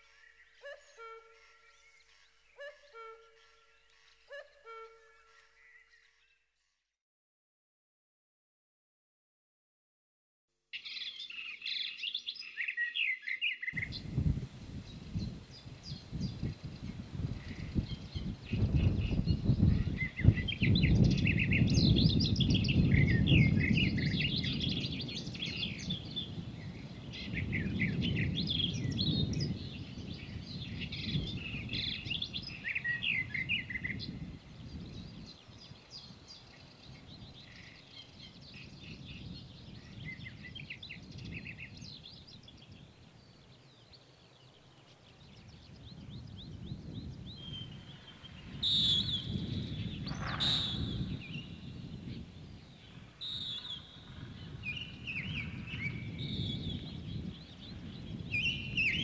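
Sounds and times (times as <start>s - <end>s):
songbirds chirping and trilling: 0.0s - 6.9s, 10.8s - 59.0s
wind rumble on microphone: 13.7s - 59.0s.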